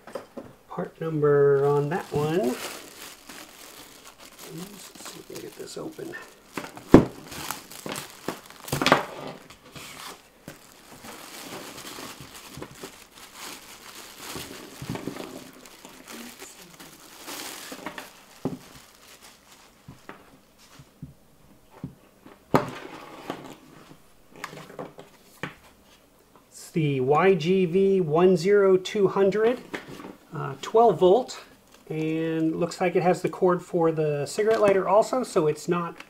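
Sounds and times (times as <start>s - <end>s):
plastic bag crinkling and tearing: 1.4s - 20.1s, 31.6s - 32.1s.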